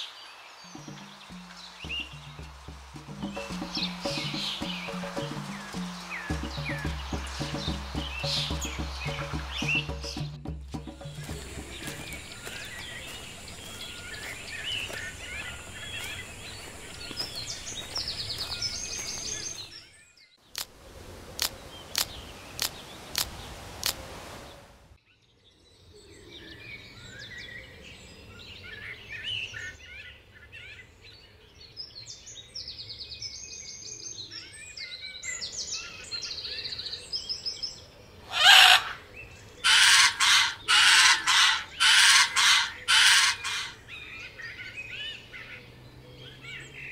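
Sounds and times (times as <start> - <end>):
small birds chirping: 0.0 - 20.7, 21.3 - 27.6, 28.2 - 46.9
sharp clicks: 21.4 - 24.0
bird squawking loudly: 38.3 - 39.0, 39.6 - 43.8.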